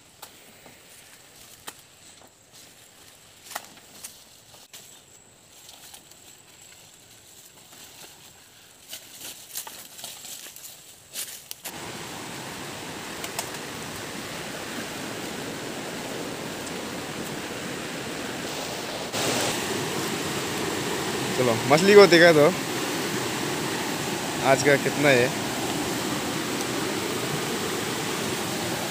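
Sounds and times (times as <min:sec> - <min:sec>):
leaves rustling and snapping: 0:01.4 - 0:01.9, 0:03.0 - 0:04.9, 0:05.5 - 0:11.8, 0:13.0 - 0:14.1
river water rushing: 0:11.7 - 0:28.9.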